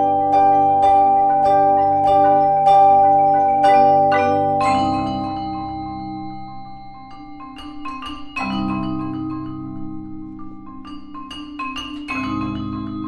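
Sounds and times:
marimba ensemble playing: 0.0s - 6.6s.

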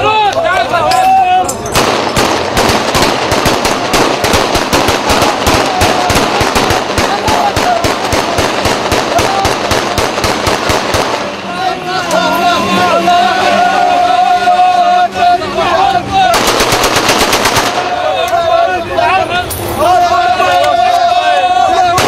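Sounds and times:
rifle gunfire: 1.8s - 11.3s, 16.3s - 18.0s.

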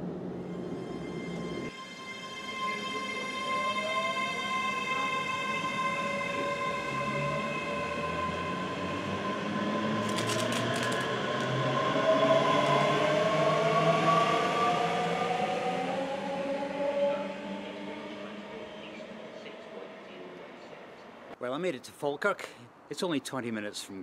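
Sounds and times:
electric train motors whining: 0.4s - 13.0s.

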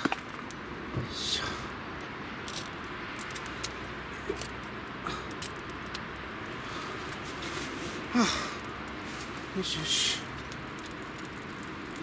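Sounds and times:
wood fire crackling and popping: 0.0s - 12.0s
fire hissing: 0.5s - 12.0s.

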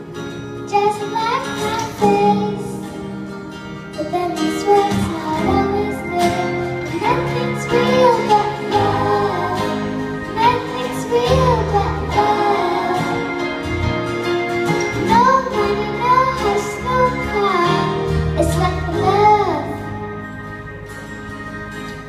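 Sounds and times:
instrumental accompaniment: 0.0s - 22.0s
child singing pop ballad: 0.7s - 3.1s, 3.9s - 13.7s, 14.8s - 20.1s.

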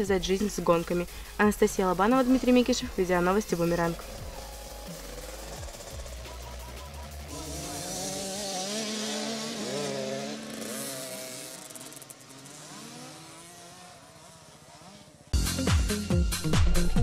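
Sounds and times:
motocross bike engines revving: 0.0s - 15.4s
electronic music jingle: 2.4s - 8.0s.

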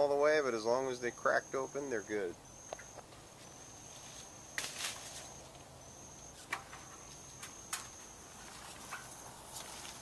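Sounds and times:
branches snapping and leaves rustling: 4.5s - 5.5s.

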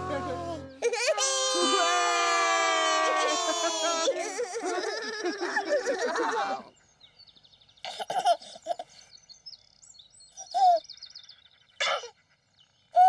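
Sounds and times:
baby giggling: 3.2s - 6.6s
small birds chirping: 4.4s - 13.0s.

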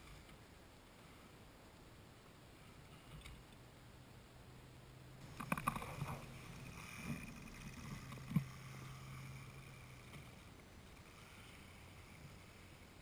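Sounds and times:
electric motor hum and whine: 5.2s - 13.0s.

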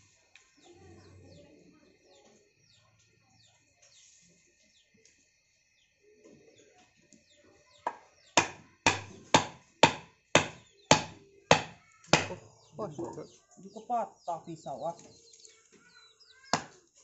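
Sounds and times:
faint bird chirping: 0.0s - 17.0s
knife chopping on wooden block: 7.9s - 12.4s.

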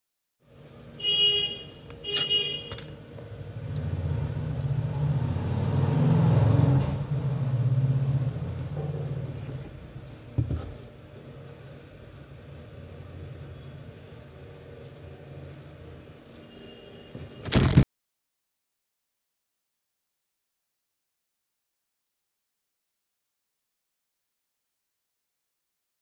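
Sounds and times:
car horn toots: 1.0s - 3.0s
passing vehicle engine: 3.3s - 9.7s.

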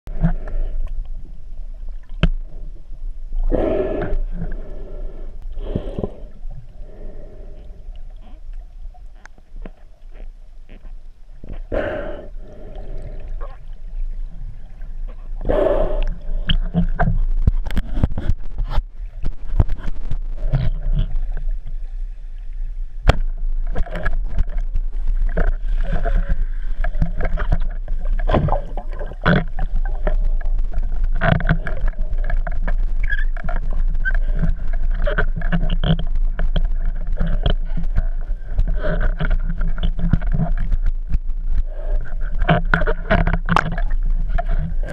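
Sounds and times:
underwater rushing water: 11.4s - 44.9s
sharp underwater clicks: 23.0s - 44.9s.

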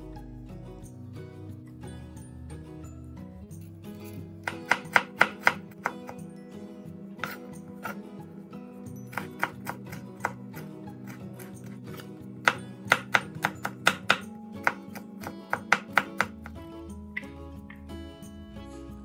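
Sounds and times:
acoustic guitar music: 0.0s - 19.0s
knife chopping on wooden board: 4.4s - 6.2s, 7.2s - 8.0s, 9.0s - 16.6s.

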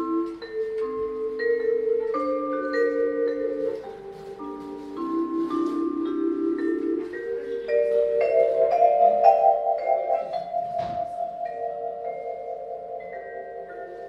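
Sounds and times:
vibraphone played with mallets: 0.0s - 14.0s.

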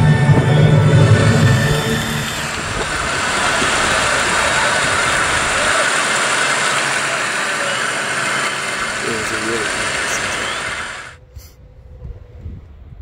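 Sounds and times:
surf rushing: 0.0s - 11.2s
low rumble: 0.0s - 13.0s
wind: 0.0s - 13.0s.

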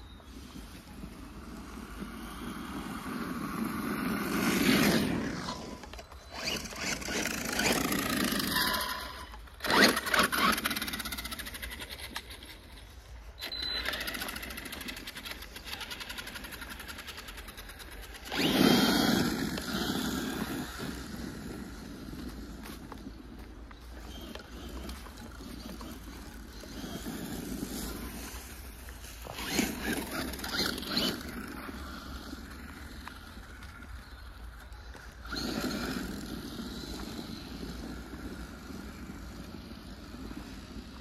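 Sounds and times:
remote-controlled car motor surging: 0.0s - 41.0s.

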